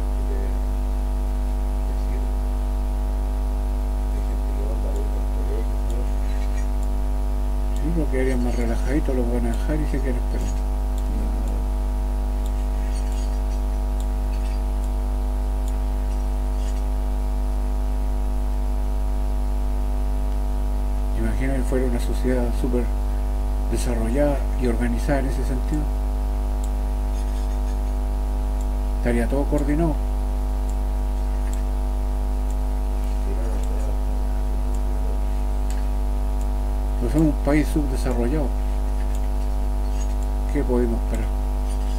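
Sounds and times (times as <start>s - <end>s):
steady low hum: 0.0s - 41.9s
faint ticks: 9.5s - 15.0s, 26.6s - 28.0s, 30.6s - 31.7s
faint voice murmuring: 11.1s - 11.7s.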